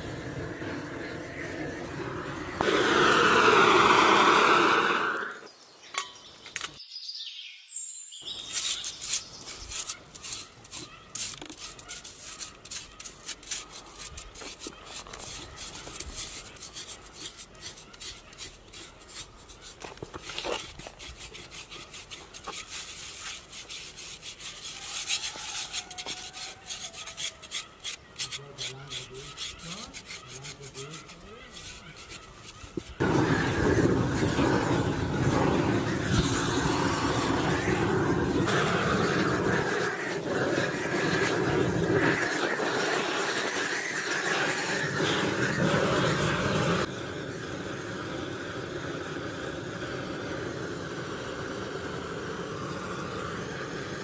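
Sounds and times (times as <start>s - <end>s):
gas burner blowing: 0.0s - 5.5s, 33.0s - 54.0s
knife scraping hide: 8.3s - 45.8s.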